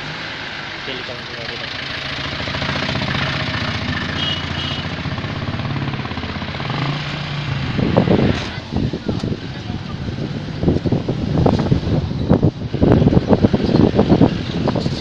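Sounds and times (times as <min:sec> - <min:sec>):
wind buffeting microphone: 0:05.0 - 0:15.0.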